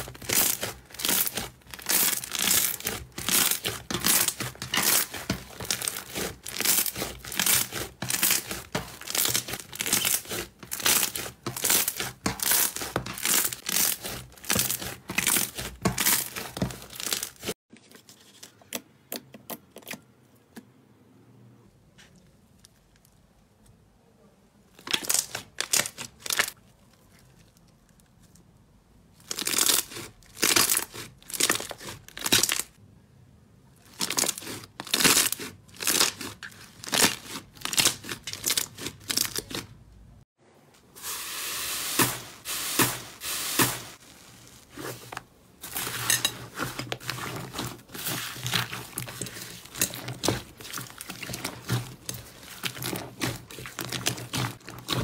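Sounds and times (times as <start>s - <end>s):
slime crackling when kneaded: 0.0s - 17.6s, 24.8s - 27.1s, 33.9s - 39.7s, 43.6s - 55.0s.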